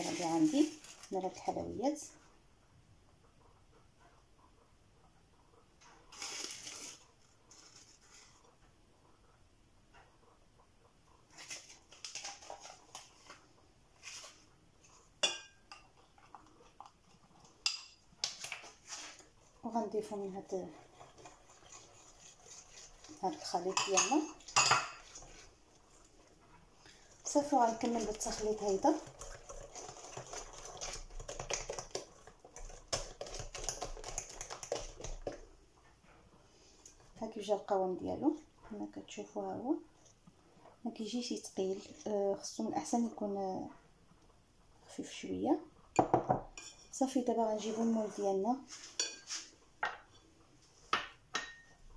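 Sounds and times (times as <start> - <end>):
spoon stirring in glass bowl: 11.3 - 13.4, 14.0 - 26.1, 26.8 - 35.6, 45.9 - 50.3, 50.9 - 51.8
spoon clinking on glass: 51.4 - 51.8.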